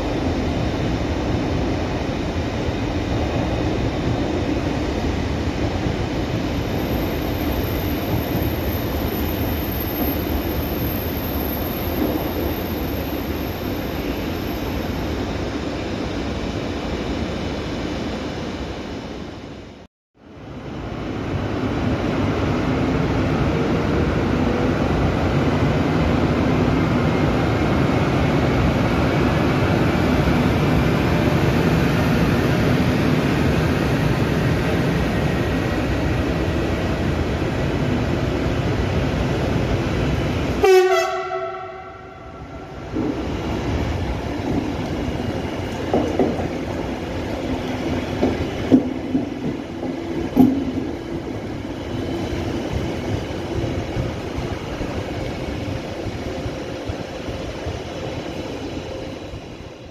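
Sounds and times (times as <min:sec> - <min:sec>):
train coaches rolling on rails: 0:00.0 - 0:18.0, 0:20.9 - 0:59.9
wheels clicking over rail joints: 0:44.4 - 0:51.6.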